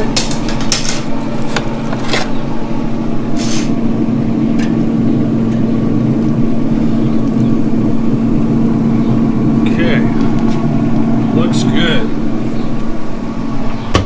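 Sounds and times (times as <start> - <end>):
grill fan humming: 0.0 - 14.0
short scrape on grate: 3.4 - 3.8.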